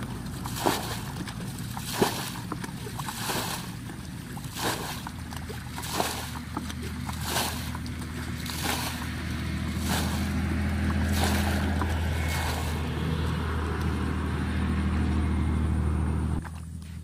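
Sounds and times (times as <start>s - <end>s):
water splashing on ground: 0.0s - 14.1s
low engine hum: 0.0s - 17.0s.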